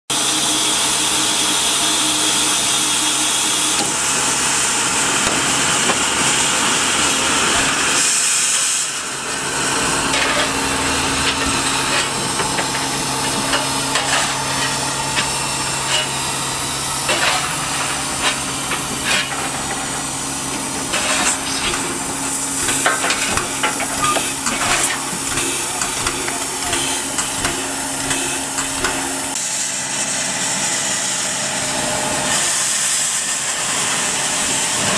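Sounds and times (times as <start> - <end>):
steam locomotive hissing: 0.1 - 34.9
knocks and clanks: 10.1 - 16.2, 17.0 - 29.4.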